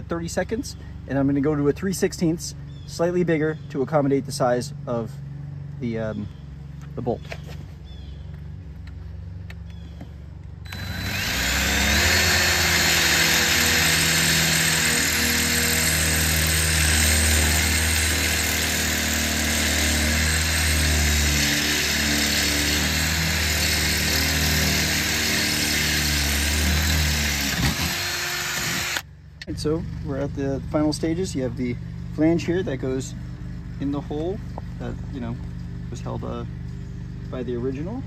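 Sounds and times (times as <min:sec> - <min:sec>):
cordless drill drilling metal: 0:10.7 - 0:29.0.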